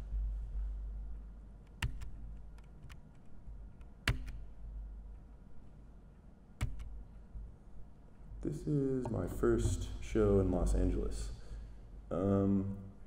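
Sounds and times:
low steady hum: 0.0s - 13.0s
sharp clicks and knocks: 1.6s - 5.3s, 6.6s - 7.3s, 9.0s - 10.2s.

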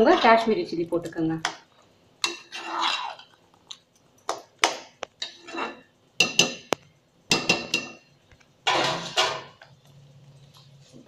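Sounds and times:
spoon clinking and scraping pan: 2.2s - 3.4s, 5.2s - 9.7s.

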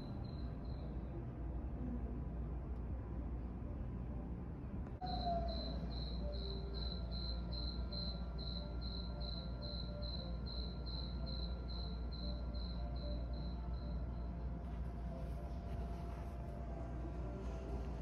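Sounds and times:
cricket chirping: 0.0s - 1.0s, 5.0s - 14.4s
low steady hum: 0.0s - 18.0s.

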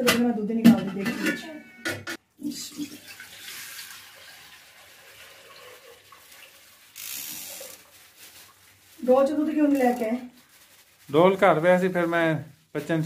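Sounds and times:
milk pouring into a steel pot: 2.5s - 8.6s
plastic bag rustling: 5.8s - 13.0s.

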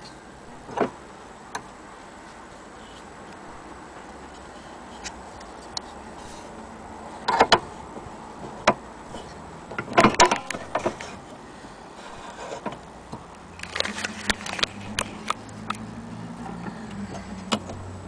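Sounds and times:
metal clicks and knocks: 8.4s - 11.2s.

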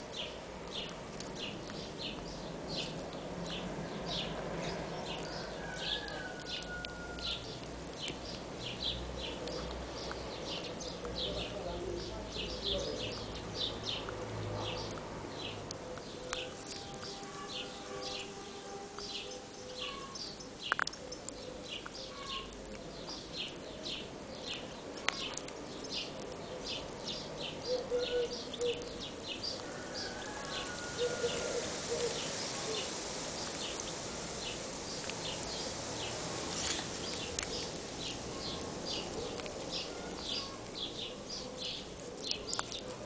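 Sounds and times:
small bird chirping: 14.7s - 29.8s.

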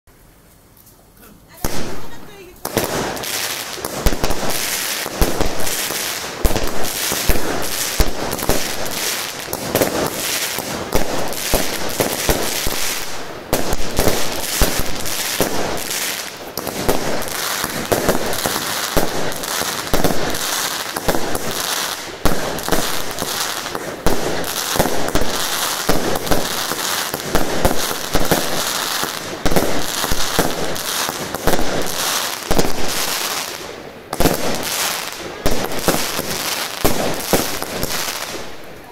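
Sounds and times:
crackling firework bursts: 1.5s - 38.9s
firework shots launching: 1.6s - 33.4s, 34.1s - 38.6s.

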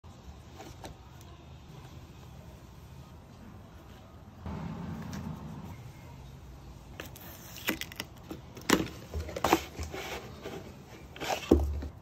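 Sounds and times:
cardboard scraping and rustling: 7.0s - 12.0s.

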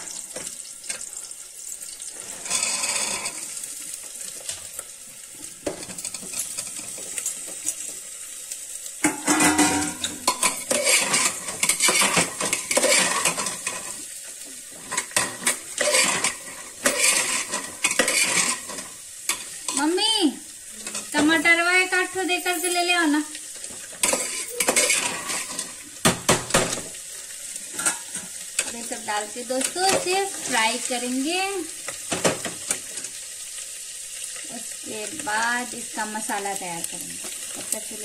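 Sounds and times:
food sizzling in hot oil: 0.0s - 38.0s
metal spoon scraping a pan: 2.0s - 3.7s, 5.6s - 7.9s, 9.0s - 14.1s, 14.7s - 19.9s, 23.5s - 26.9s, 27.7s - 33.2s.

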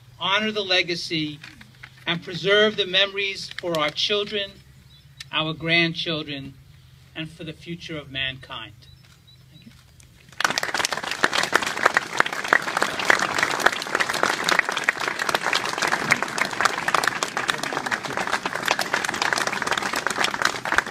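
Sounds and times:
audience applauding: 10.3s - 20.9s.

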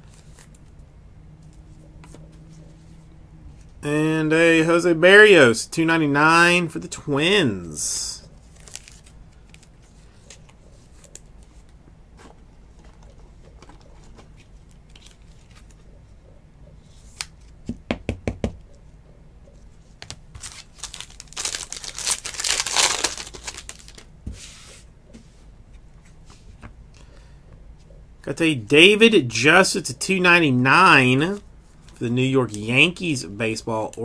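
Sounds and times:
hands handling cards: 8.2s - 15.8s, 20.0s - 24.5s
wrapper crinkling and tearing: 8.4s - 9.8s, 20.4s - 24.1s.

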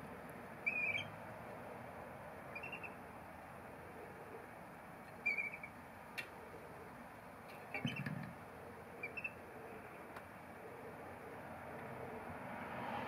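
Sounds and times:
bird chirping: 0.6s - 1.2s, 2.5s - 3.0s, 5.2s - 5.8s, 7.7s - 8.3s, 9.0s - 9.4s.

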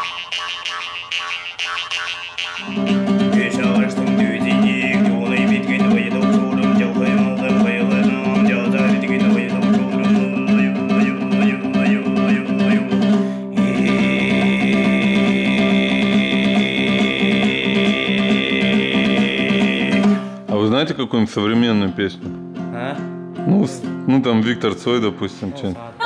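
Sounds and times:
throat singing drone with overtones: 0.0s - 20.5s
strummed plucked string instrument: 2.6s - 25.2s.

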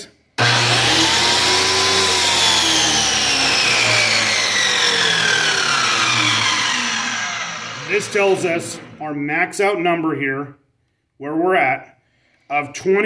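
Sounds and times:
circular saw motor whine: 0.4s - 9.2s.

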